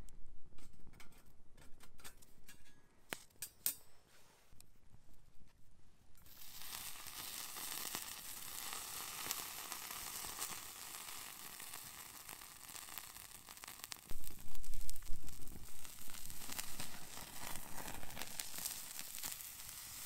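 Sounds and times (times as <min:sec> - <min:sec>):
meat sizzling on a grill plate: 0:06.3 - 0:20.0.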